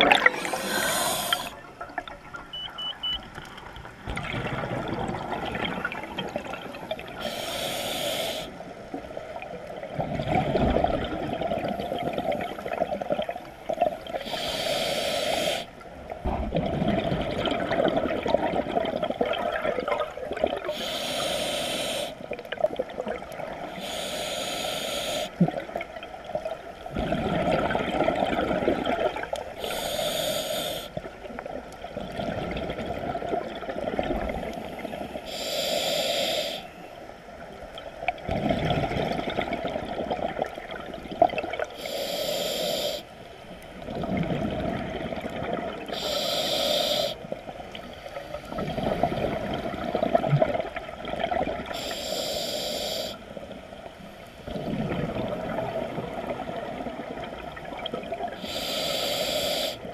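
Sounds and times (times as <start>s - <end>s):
exhaled bubbles rumbling: 0.0s - 7.2s, 9.2s - 14.2s, 16.1s - 20.7s, 25.4s - 29.4s, 31.0s - 35.1s, 37.6s - 41.7s, 43.8s - 46.0s, 48.5s - 51.8s, 54.4s - 58.4s
regulator hissing inhalations: 0.2s - 1.6s, 7.2s - 8.6s, 14.2s - 15.7s, 20.7s - 22.2s, 23.8s - 25.4s, 29.6s - 31.0s, 35.2s - 36.8s, 41.8s - 43.1s, 45.9s - 47.3s, 51.7s - 53.3s, 58.4s - 59.9s.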